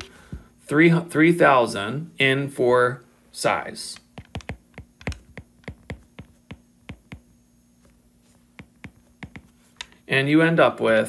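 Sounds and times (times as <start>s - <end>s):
stylus tapping on tablet screen: 4.1s - 10.0s.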